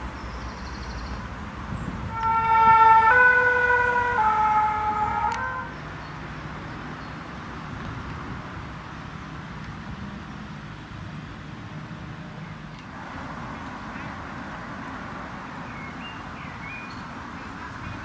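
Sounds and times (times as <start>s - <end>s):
traffic noise: 0.0s - 18.0s
two-tone siren: 2.1s - 5.7s.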